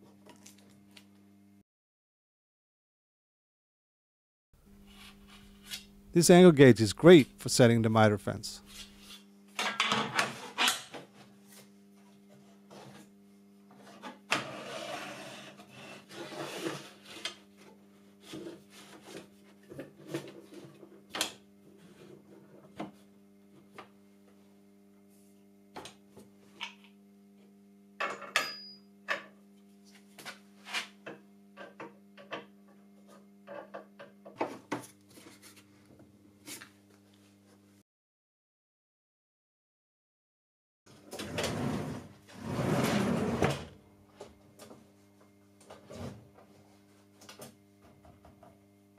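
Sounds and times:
steady low hum: 4.6 - 9.5.

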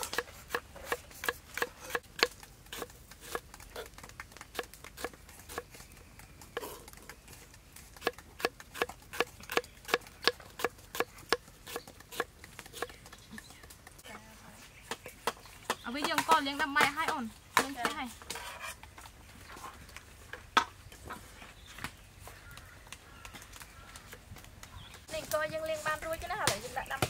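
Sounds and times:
knife chopping on wooden board: 0.0 - 3.9, 8.0 - 13.0.

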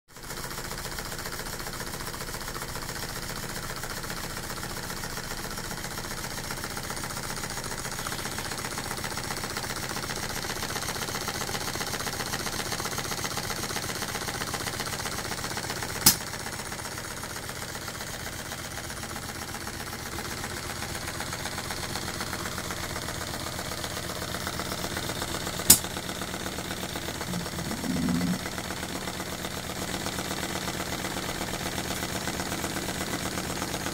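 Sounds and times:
brief low sound: 27.2 - 29.1.

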